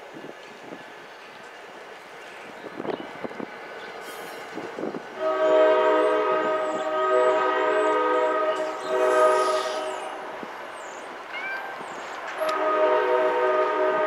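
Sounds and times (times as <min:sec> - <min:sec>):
train air horn blasts: 0:05.2 - 0:10.3, 0:12.4 - 0:14.0.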